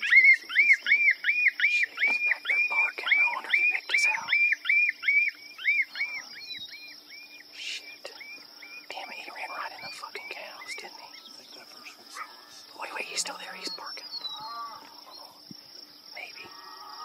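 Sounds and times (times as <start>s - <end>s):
predator call animal squeal: 14.2s - 14.9s.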